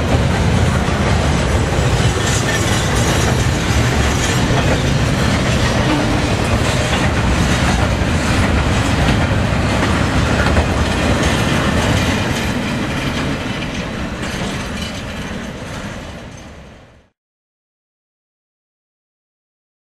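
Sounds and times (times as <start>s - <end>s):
freight train rolling past: 0.0s - 17.1s.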